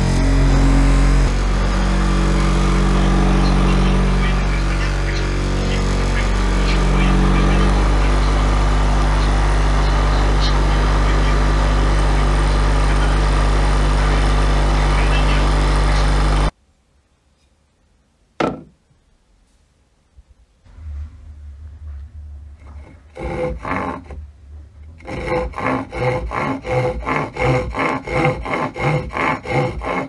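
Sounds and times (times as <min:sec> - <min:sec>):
bench grinder motor hum: 0:00.0 - 0:16.5, 0:20.7 - 0:30.0
sharp knock: 0:18.4 - 0:18.8.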